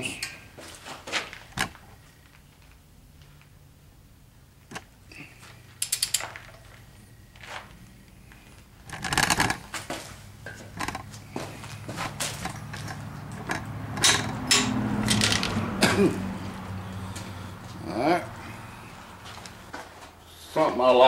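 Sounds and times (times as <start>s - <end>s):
ratchet wrench clicking: 5.8s - 6.2s.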